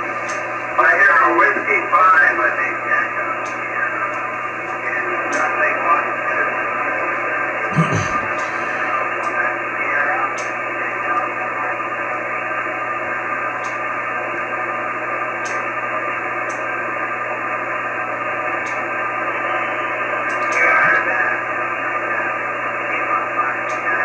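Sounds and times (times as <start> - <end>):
radio receiver hiss: 7.7 - 11.2.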